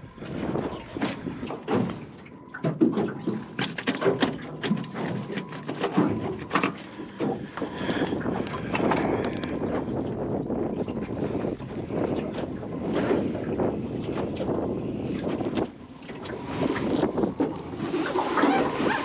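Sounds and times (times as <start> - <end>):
water noise: 0.0 - 19.0
wind: 0.0 - 19.0
fishing gear clicks and knocks: 1.6 - 9.5.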